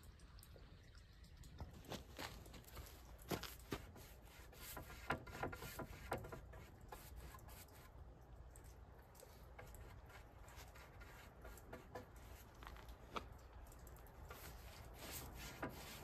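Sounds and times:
paintbrush rubbing on wood: 3.6 - 8.0, 9.3 - 12.8, 14.3 - 16.0.

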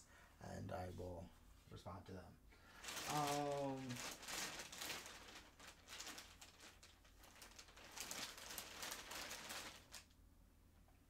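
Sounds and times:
rustling and handling noises: 2.7 - 10.2.

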